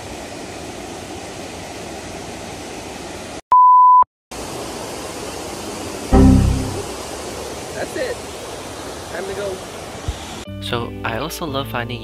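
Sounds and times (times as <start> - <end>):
fountain water rushing: 4.4 - 6.1, 6.9 - 10.4.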